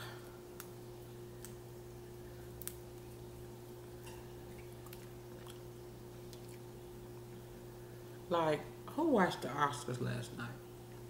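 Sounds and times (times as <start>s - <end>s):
steady low hum: 0.0s - 11.0s
shells being peeled by hand: 0.5s - 1.7s, 2.5s - 3.2s.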